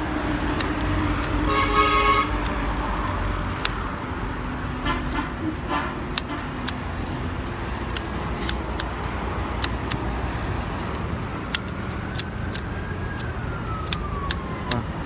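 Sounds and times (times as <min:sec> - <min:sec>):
low traffic rumble: 0:00.0 - 0:15.0
pruning shears snipping: 0:00.0 - 0:15.0
faint siren-like tone: 0:11.3 - 0:15.0.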